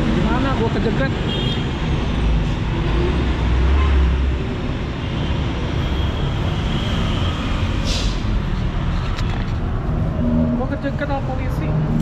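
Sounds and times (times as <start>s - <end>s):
traffic hum: 0.0s - 12.0s
vehicle low rumble: 8.2s - 12.0s.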